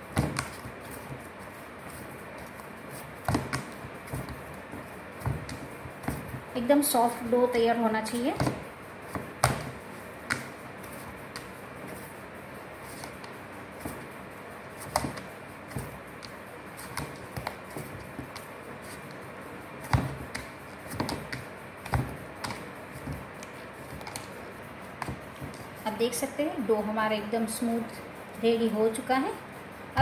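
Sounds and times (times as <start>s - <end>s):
dough thumping against bowl: 0.1s - 1.2s, 3.2s - 6.5s, 8.3s - 10.6s, 14.8s - 18.5s, 19.8s - 24.3s, 25.0s - 25.7s.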